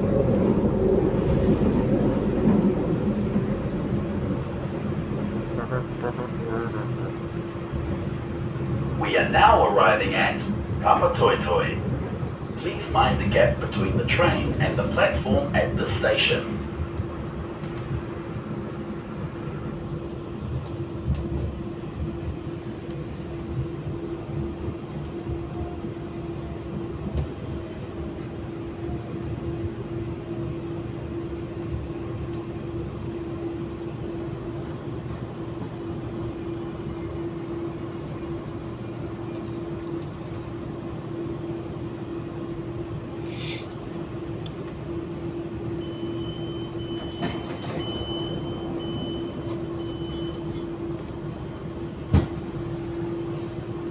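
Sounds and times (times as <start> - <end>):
train rumble with electric hum: 0.0 - 53.9
short hiss: 43.2 - 43.7
high steady beep: 45.8 - 50.5.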